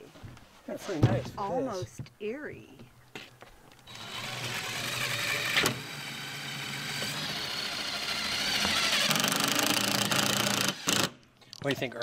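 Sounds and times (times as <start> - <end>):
impact driver motor whir: 3.9 - 11.2.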